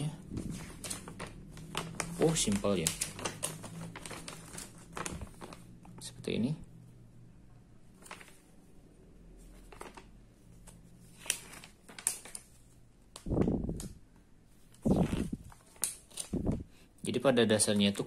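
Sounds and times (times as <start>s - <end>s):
paper pages turning: 0.3s - 6.0s, 7.9s - 8.6s, 9.4s - 16.6s.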